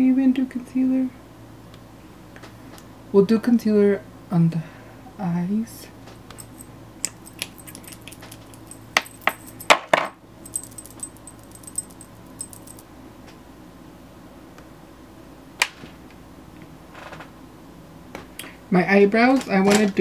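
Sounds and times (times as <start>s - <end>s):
makeup items clicking: 6.3s - 9.8s.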